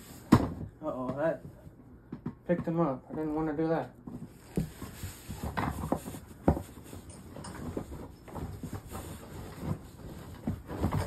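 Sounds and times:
cardboard box being handled: 4.2 - 11.0.

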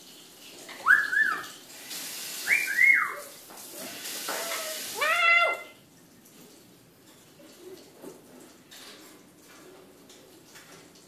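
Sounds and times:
parrot whistled calls: 0.8 - 1.5, 2.4 - 3.3.

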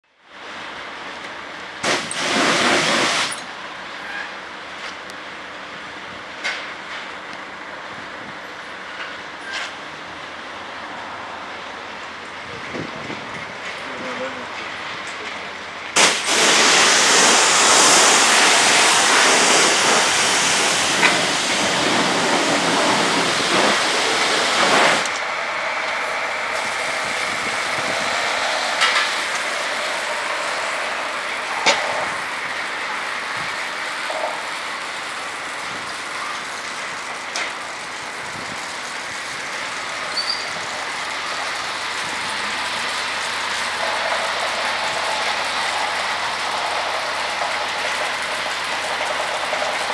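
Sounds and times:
car wash machinery: 0.0 - 49.9
water spray hissing: 1.8 - 3.4, 16.0 - 37.0, 37.9 - 49.9.

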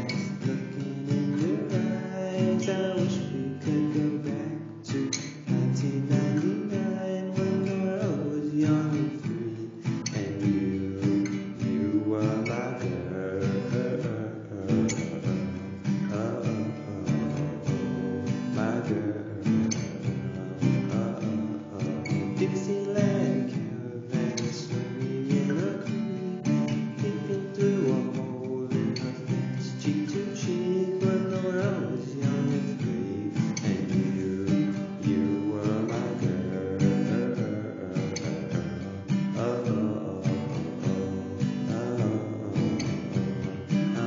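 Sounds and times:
strummed acoustic guitar: 0.0 - 44.0.

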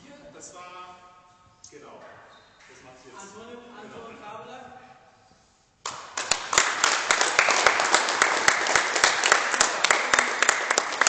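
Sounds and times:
small group applauding: 5.8 - 11.0.

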